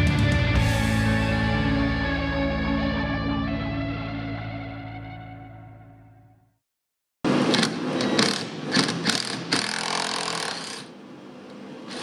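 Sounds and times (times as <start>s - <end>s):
impact driver hammering: 7.6s - 10.9s.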